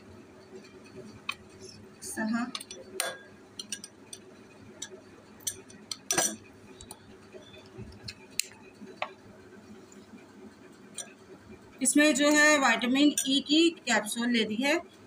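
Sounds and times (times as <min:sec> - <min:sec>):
metal spoon clinking on glass bowl: 0:02.6 - 0:06.5, 0:13.0 - 0:13.5.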